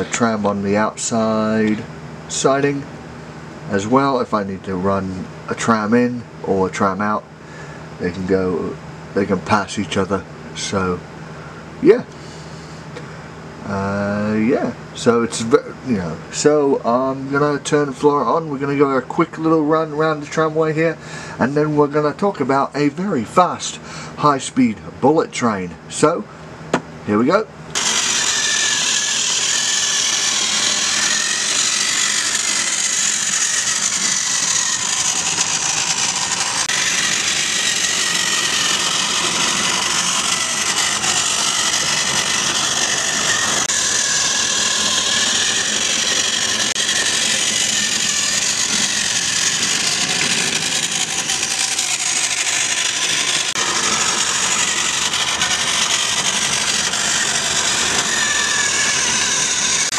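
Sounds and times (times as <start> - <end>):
toy tram motor whirring: 27.7 - 59.9.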